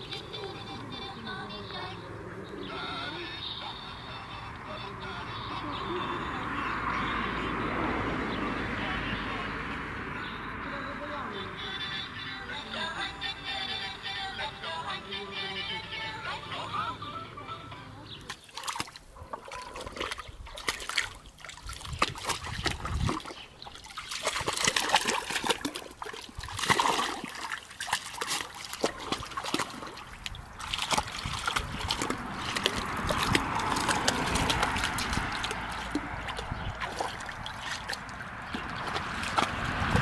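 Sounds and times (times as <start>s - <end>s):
puppy splashing in water: 18.1s - 40.0s.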